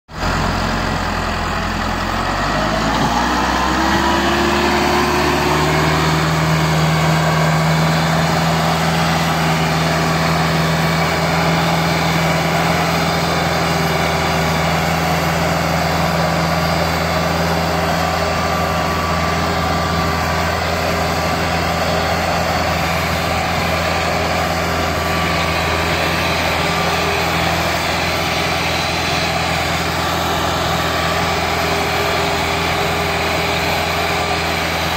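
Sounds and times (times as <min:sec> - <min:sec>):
tractor diesel engine revving: 0:00.1 - 0:34.9.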